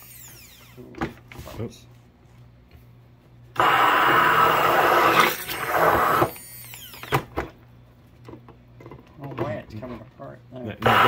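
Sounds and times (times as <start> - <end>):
blender winding down whine: 0.0 - 0.8, 3.6 - 7.1
stick blender running: 3.6 - 7.2, 10.8 - 11.0.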